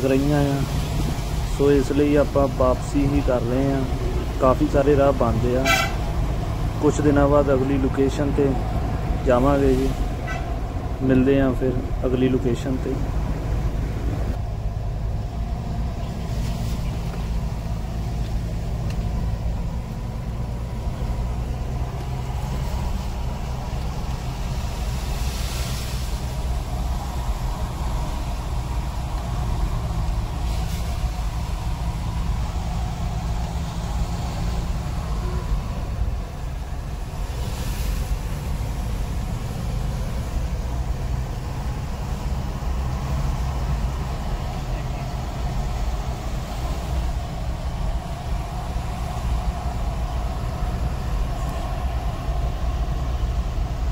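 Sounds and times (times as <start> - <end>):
car engine and road noise: 0.0 - 53.9
swells of hiss: 21.8 - 53.9.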